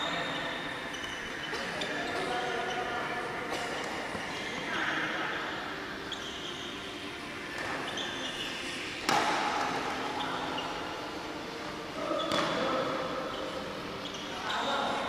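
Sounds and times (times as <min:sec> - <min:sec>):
shoes squeaking on court: 0:00.0 - 0:03.0, 0:05.3 - 0:10.9, 0:12.0 - 0:15.0
voices in background: 0:00.0 - 0:15.0.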